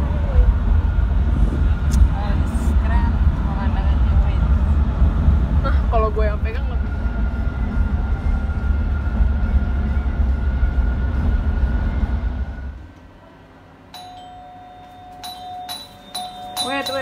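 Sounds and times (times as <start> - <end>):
car road noise rumble: 0.0 - 12.1
chime-like tone: 13.9 - 17.0.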